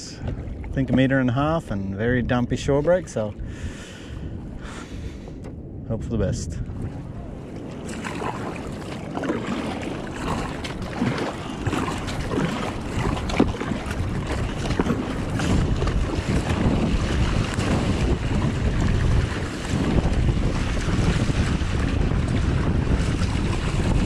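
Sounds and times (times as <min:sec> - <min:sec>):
water splashing against kayak: 0:00.0 - 0:01.6, 0:06.6 - 0:24.0
wind buffeting microphone: 0:00.0 - 0:24.0.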